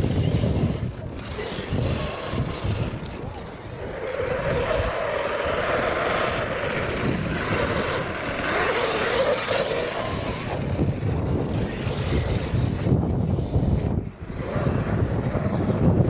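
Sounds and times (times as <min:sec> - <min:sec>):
rc truck motor whine: 0:00.0 - 0:16.0.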